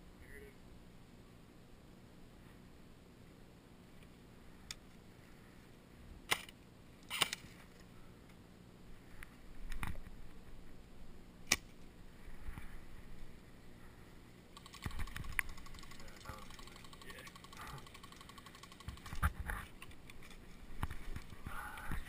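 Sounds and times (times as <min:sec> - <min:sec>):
clicks and knocks of guns: 0:06.3 - 0:07.9.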